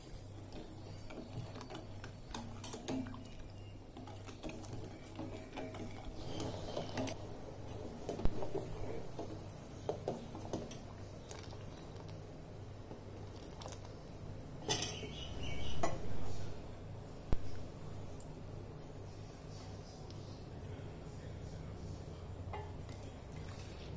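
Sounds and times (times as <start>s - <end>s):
ladle scraping metal pot: 0.0s - 10.8s.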